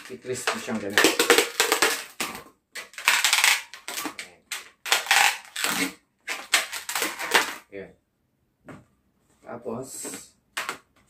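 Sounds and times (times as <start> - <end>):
balloons squeaking and rubbing: 0.0 - 7.6.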